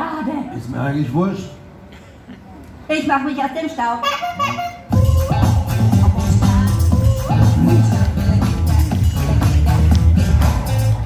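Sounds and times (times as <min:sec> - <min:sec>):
loud music with heavy bass: 0:04.4 - 0:11.0.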